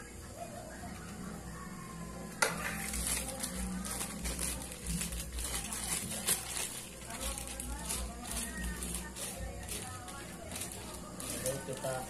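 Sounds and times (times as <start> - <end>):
plastic bag crinkling: 2.4 - 12.0.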